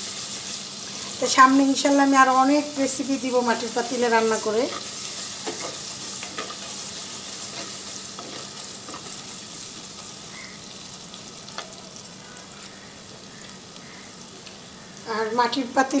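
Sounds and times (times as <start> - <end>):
onions sizzling in hot oil: 0.0 - 16.0
wooden spatula scraping a pot: 7.4 - 9.3.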